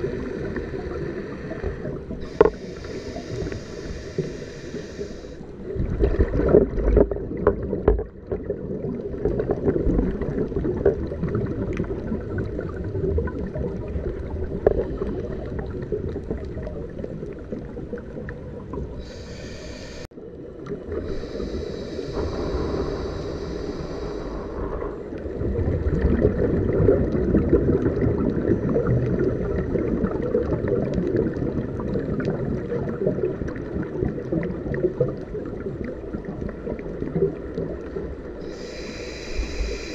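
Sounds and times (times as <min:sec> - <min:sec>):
hissing regulator inhalations: 0:00.0 - 0:05.5, 0:19.0 - 0:20.1, 0:21.0 - 0:24.9, 0:38.4 - 0:39.9.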